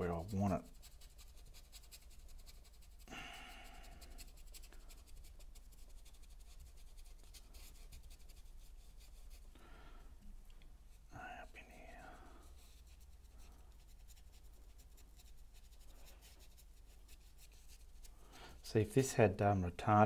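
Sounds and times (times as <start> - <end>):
paintbrush scrubbing on canvas: 0.0 - 9.5, 10.9 - 19.2.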